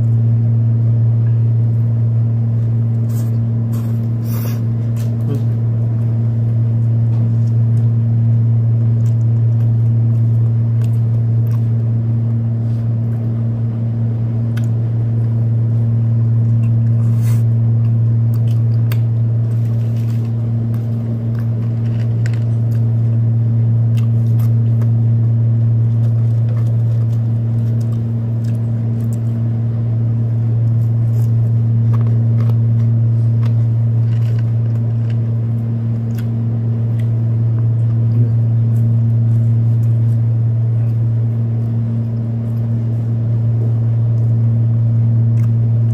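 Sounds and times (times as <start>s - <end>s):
air conditioner humming: 0.0s - 45.9s
chewing clicks: 7.4s - 11.9s, 14.5s - 15.4s, 16.4s - 23.2s, 23.8s - 25.0s, 26.0s - 29.4s, 30.6s - 40.0s, 45.3s - 45.9s.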